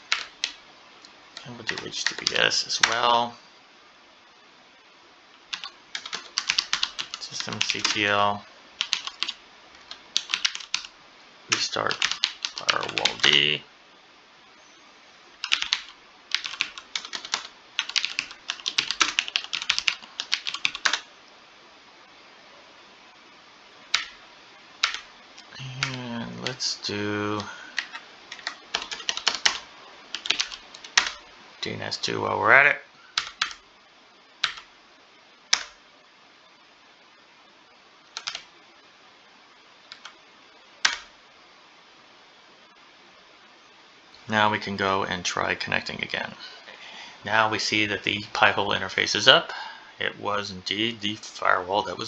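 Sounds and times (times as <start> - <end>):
faint microphone hiss: 0.0 - 52.0
computer keyboard keystrokes: 5.5 - 8.0, 8.8 - 10.9, 11.5 - 13.3, 15.4 - 21.0, 23.9 - 24.2, 24.8 - 25.1, 27.8 - 31.2, 33.2 - 33.6, 34.4 - 34.7, 35.5 - 35.8, 38.2 - 38.4, 40.8 - 41.1
keyboard typing clicks: 38.2 - 38.4, 40.8 - 41.1.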